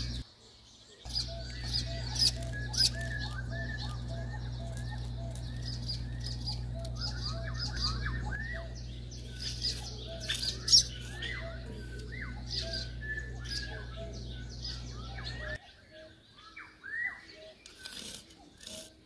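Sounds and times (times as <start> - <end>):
low steady hum: 0.0 - 0.2, 1.1 - 15.6
birds chirping: 0.0 - 19.0
brief sharp scrape: 17.7 - 19.0.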